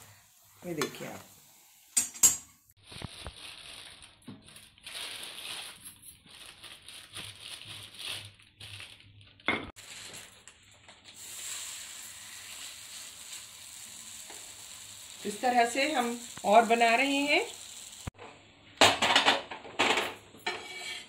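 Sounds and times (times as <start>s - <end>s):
flatbread sizzling on hot iron: 0.0s - 2.1s, 11.1s - 18.2s
plastic wrap crinkling: 2.8s - 11.2s.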